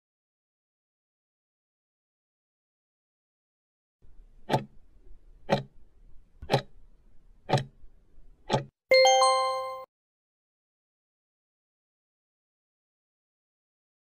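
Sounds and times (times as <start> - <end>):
clock ticking: 4.4 - 4.8, 5.4 - 5.8, 6.4 - 6.8, 7.4 - 7.8, 8.5 - 8.7
loud bell chime: 8.9 - 9.9.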